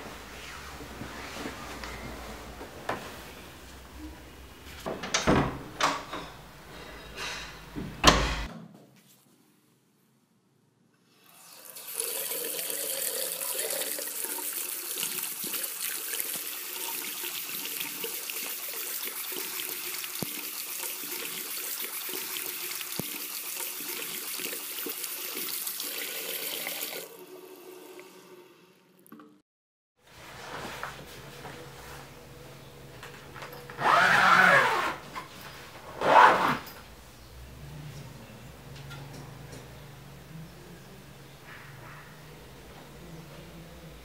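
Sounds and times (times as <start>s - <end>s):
tap water running: 11.2s - 29.2s.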